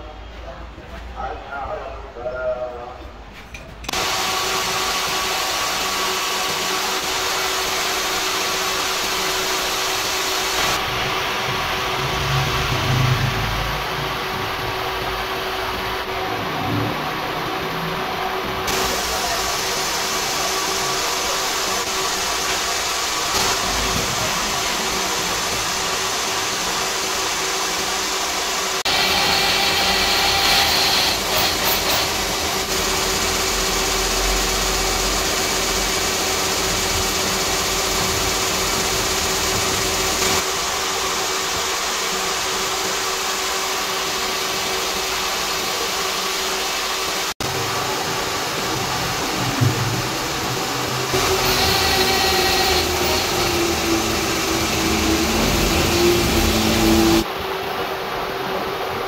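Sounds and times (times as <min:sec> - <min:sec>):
gear-cutting machine humming: 0:03.9 - 0:57.3
milling cutter cutting steel: 0:18.7 - 0:40.5, 0:50.8 - 0:57.3.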